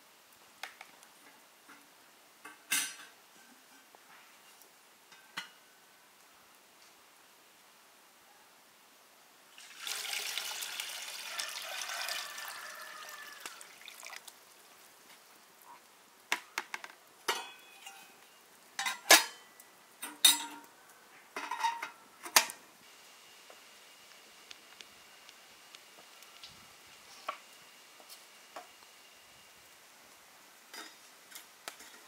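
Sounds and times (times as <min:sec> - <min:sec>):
water pouring into metal vessel: 0:09.6 - 0:14.3.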